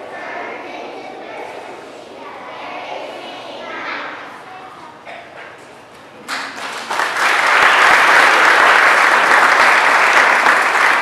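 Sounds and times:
audience applauding: 0:06.3 - 0:11.0.

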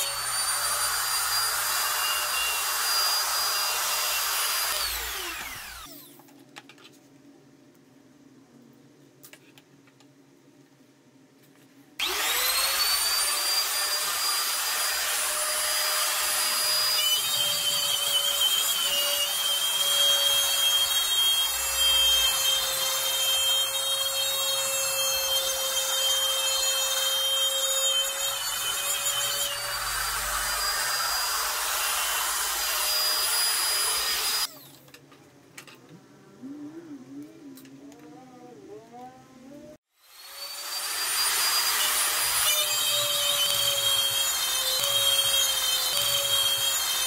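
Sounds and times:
router cutting wood: 0:00.0 - 0:06.1, 0:12.0 - 0:34.7, 0:40.0 - 0:47.0
router motor whining: 0:00.0 - 0:06.2, 0:12.0 - 0:34.8, 0:40.0 - 0:47.0.

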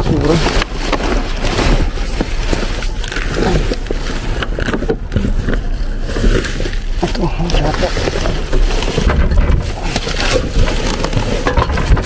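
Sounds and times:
plastic bags and cardboard rustling: 0:00.0 - 0:12.0.

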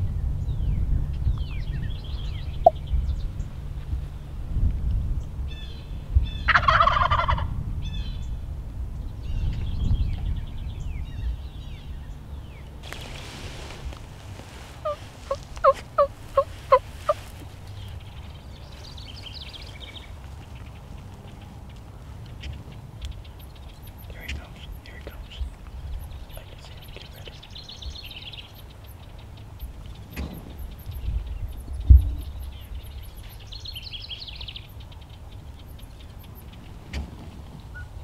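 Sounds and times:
songbirds chirping: 0:00.0 - 0:38.0
turkey gobbling: 0:06.5 - 0:07.5, 0:14.5 - 0:17.4.

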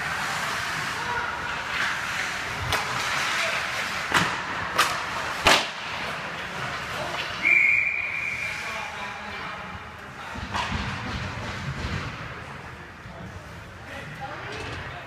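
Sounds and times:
skates scraping on ice: 0:00.0 - 0:07.4, 0:10.1 - 0:13.7
hockey sticks and puck clacking: 0:00.0 - 0:07.5, 0:09.6 - 0:12.8.

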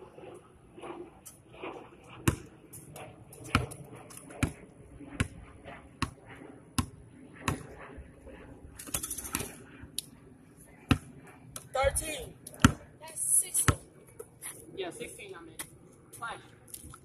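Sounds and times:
basketball bouncing on pavement: 0:02.1 - 0:08.2, 0:10.8 - 0:12.9, 0:13.5 - 0:14.4.

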